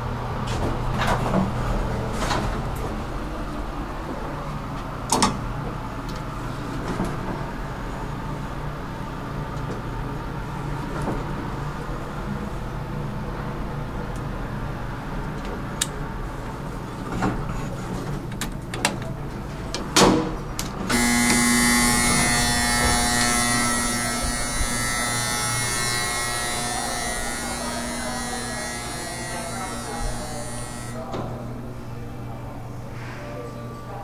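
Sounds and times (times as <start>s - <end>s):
loud electric buzz: 20.9s - 31.1s.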